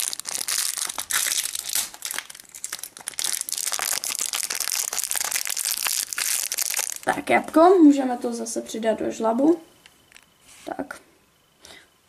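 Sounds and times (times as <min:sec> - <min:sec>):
plastic wrapper crinkling: 0:00.0 - 0:07.2.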